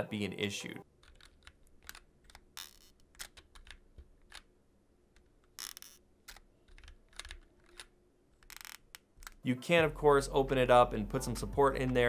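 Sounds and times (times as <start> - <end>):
rough keyboard noise: 0.8 - 4.5, 5.1 - 9.5
keyboard plate creaking: 1.0 - 4.4, 5.5 - 9.4.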